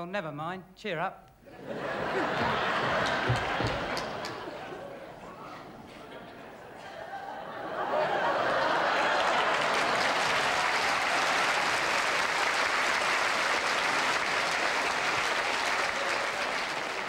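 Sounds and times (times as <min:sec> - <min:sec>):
audience applauding: 0:01.8 - 0:17.0.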